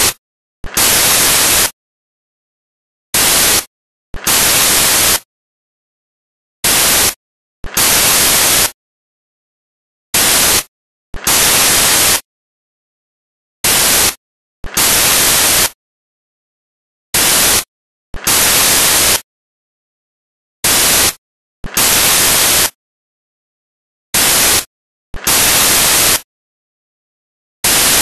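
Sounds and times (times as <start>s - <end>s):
electronic static hiss bursts: 0.0s - 1.8s, 3.2s - 5.3s, 6.6s - 8.8s, 10.2s - 12.3s, 13.6s - 15.8s, 17.2s - 19.3s, 20.6s - 22.8s, 24.2s - 26.3s, 27.6s - 28.0s.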